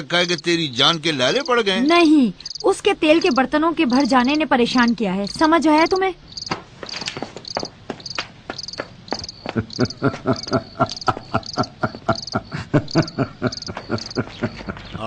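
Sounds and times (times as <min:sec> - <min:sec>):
crickets chirping: 0:00.1 - 0:14.8
man laughing quietly: 0:09.5 - 0:15.0.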